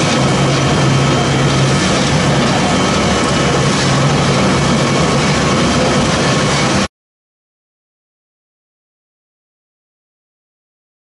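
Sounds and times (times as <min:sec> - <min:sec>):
pellet mill machine running: 0:00.0 - 0:06.9.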